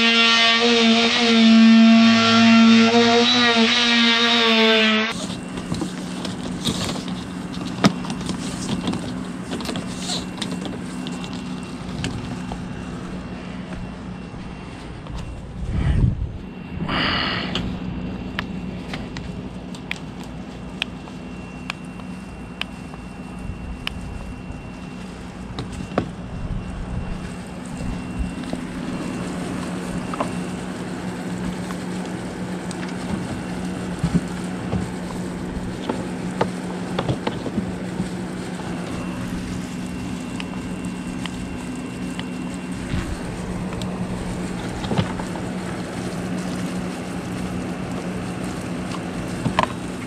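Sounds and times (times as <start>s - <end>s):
steady low hum: 0.0s - 50.0s
wind-like rumble: 14.9s - 18.3s.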